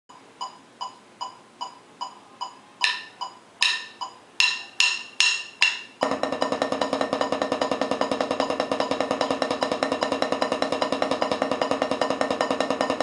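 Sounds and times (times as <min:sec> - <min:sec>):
metronome clicking: 0:00.4 - 0:06.0
drum roll on practice pad: 0:02.8 - 0:13.0.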